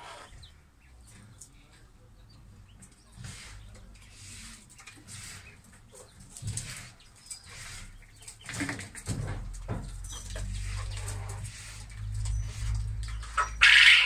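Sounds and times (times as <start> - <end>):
quail calls: 10.1 - 14.0.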